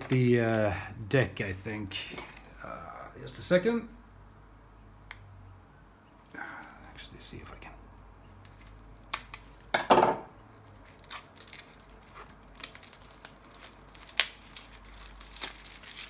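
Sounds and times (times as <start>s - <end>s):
plastic wrap crinkling and clicking: 0.0s - 0.6s, 8.3s - 9.8s, 10.5s - 16.0s.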